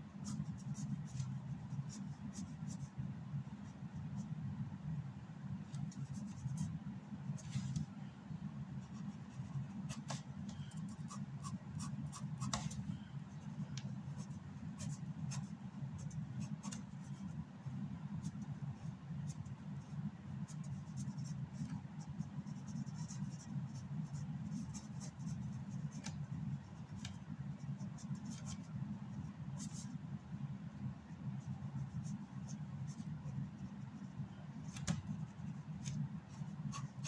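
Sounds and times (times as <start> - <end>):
pen scratching on paper: 8.8 - 12.8, 20.5 - 26.2, 31.4 - 37.0.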